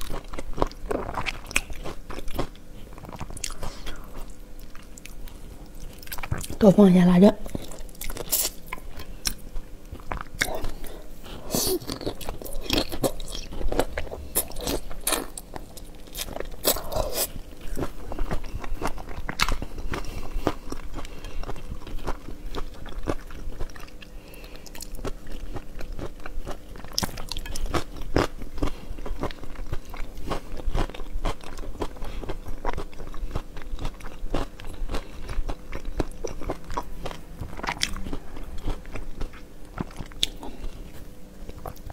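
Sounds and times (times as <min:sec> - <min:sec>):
person biting and chewing: 0:07.6 - 0:09.4, 0:10.0 - 0:23.8.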